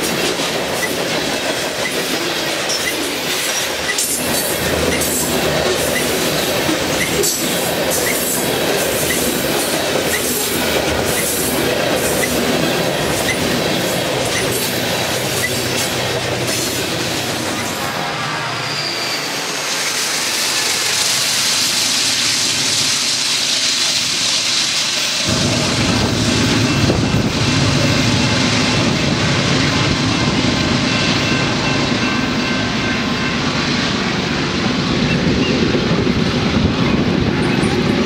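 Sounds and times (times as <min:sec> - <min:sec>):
train wheels rolling on rails: 0:00.0 - 0:38.0.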